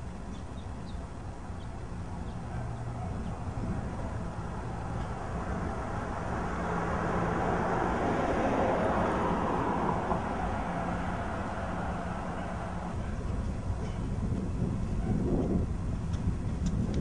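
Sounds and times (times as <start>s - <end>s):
steady low hum: 0.0s - 17.0s
car passing by: 3.8s - 13.1s.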